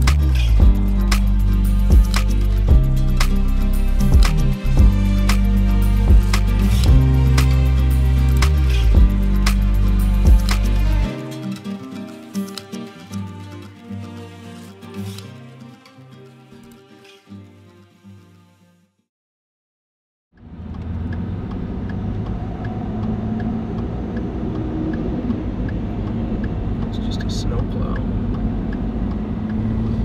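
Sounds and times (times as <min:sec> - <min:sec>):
vehicle engine rumble: 0:00.0 - 0:11.1, 0:20.4 - 0:30.0
plucked notes: 0:00.0 - 0:15.7.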